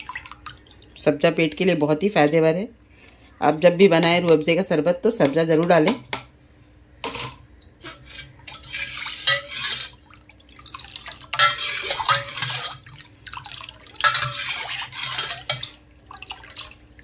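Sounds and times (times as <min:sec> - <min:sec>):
ladle stirring water: 0:00.0 - 0:01.0, 0:07.8 - 0:17.0
ladle clinking against metal pot: 0:11.4 - 0:12.8, 0:14.0 - 0:15.7.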